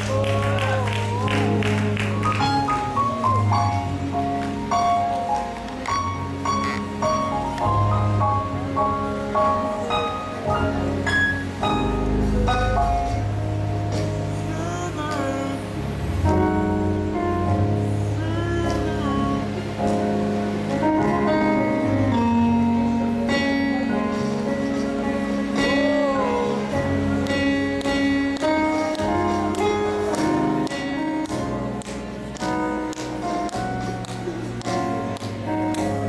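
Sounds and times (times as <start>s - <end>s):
band playing slow instrumental music: 0.0s - 36.0s.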